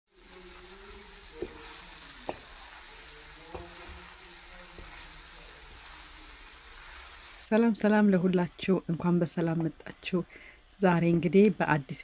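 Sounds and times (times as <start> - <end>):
food sizzling in a wok: 0.1 - 12.0
wooden spatula knocking on pan: 1.3 - 5.1.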